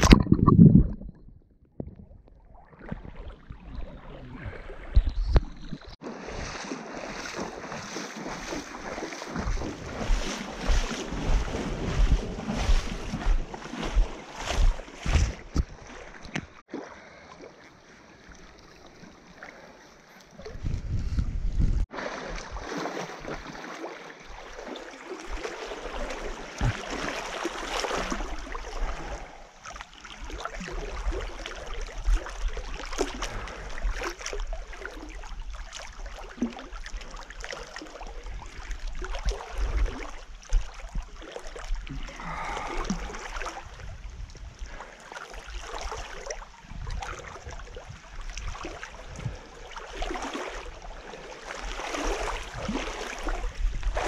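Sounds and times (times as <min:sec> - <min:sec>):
river water splashing and gurgling: 0:02.0 - 0:20.7, 0:21.8 - 0:54.0
wind buffeting microphone: 0:09.3 - 0:15.8, 0:20.4 - 0:21.9, 0:46.6 - 0:49.5, 0:52.4 - 0:54.0.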